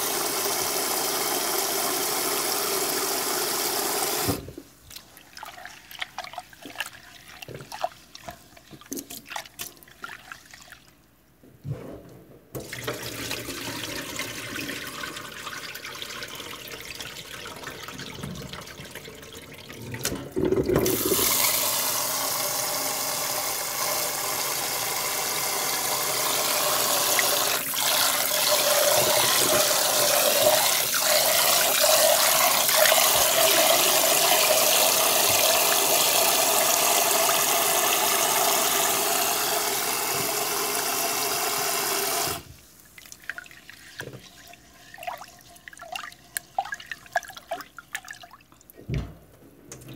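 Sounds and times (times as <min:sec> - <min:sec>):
tap water running into bowl: 0:12.6 - 0:48.6.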